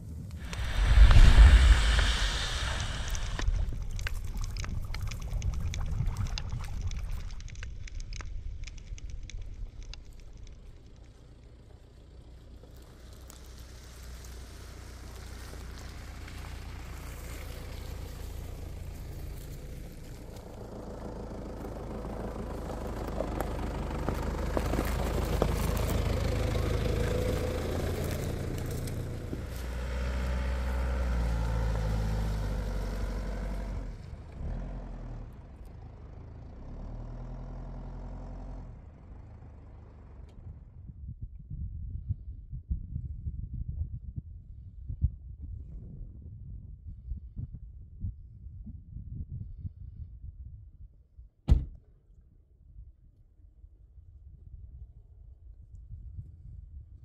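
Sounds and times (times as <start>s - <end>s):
vehicle engine running: 0.4s - 40.9s.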